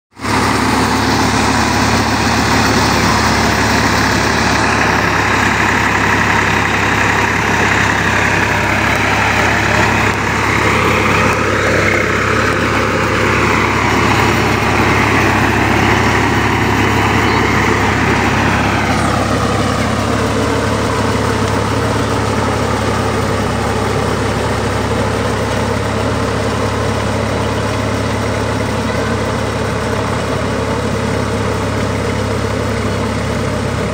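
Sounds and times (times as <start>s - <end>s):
tractor diesel engine running: 0.1s - 33.9s.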